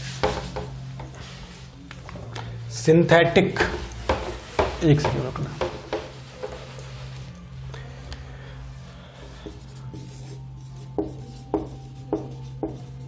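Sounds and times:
marker writing on whiteboard: 0.1s - 0.7s, 3.7s - 6.8s, 9.3s - 13.0s
eraser wiping whiteboard: 9.2s - 13.0s.

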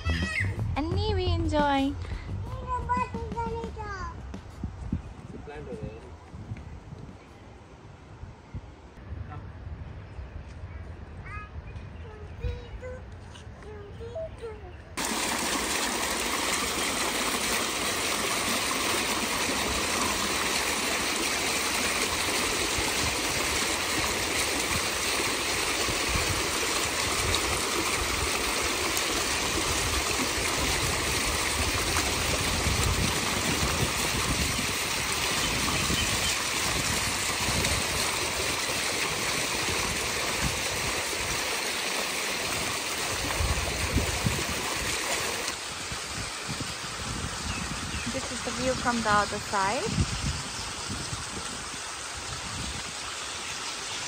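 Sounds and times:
fountain water splashing: 15.0s - 54.0s.

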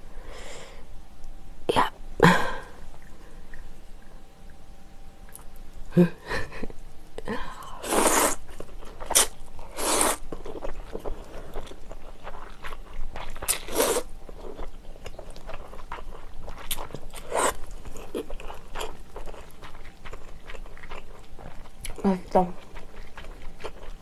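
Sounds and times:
person slurping noodles: 7.8s - 8.4s, 9.1s - 10.2s, 13.5s - 14.0s
chewing: 8.4s - 24.0s.

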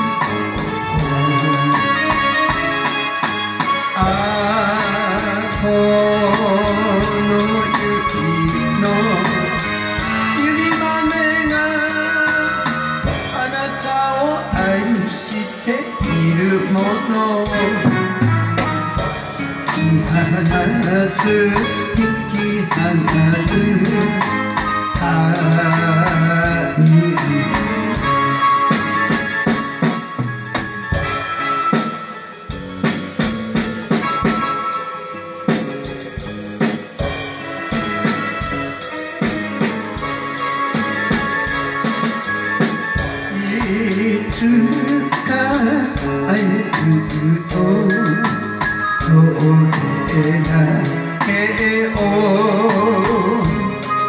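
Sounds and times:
drum kit playing: 0.0s - 54.0s
karaoke backing track: 0.0s - 54.0s.

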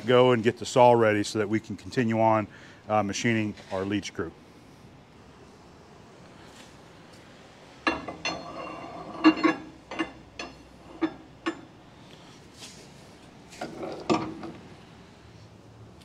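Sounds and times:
metallic clinks and knocks: 7.8s - 11.8s.

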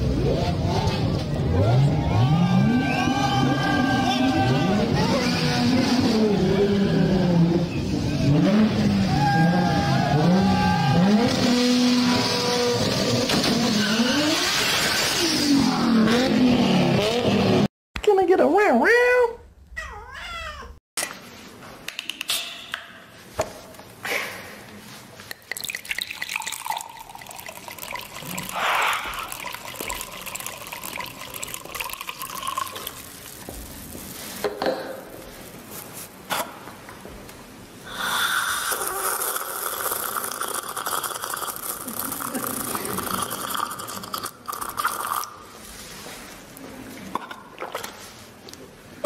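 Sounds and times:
water pouring into paper cup: 25.5s - 34.2s.

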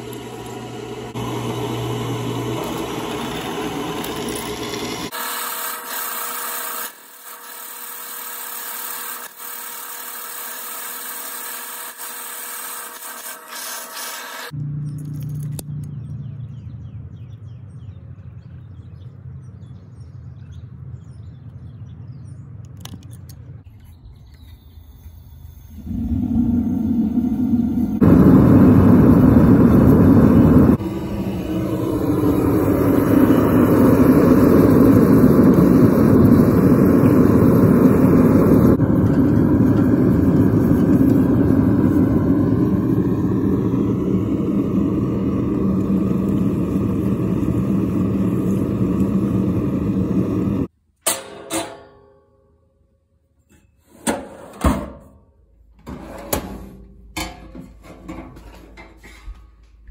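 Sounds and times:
forge burner rushing: 0.0s - 14.6s, 25.6s - 50.7s.

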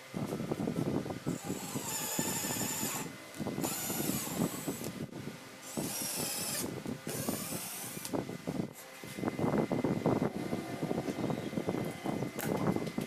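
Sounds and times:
drill motor whining: 1.3s - 4.9s, 5.6s - 8.2s
screw grinding into wood: 1.3s - 4.9s, 5.7s - 8.1s.

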